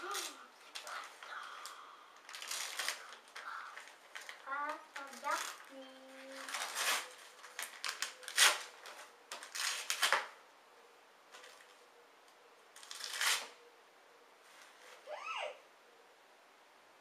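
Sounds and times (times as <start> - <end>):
wrapping paper rustling and tearing: 0.0 - 10.4, 12.8 - 13.6.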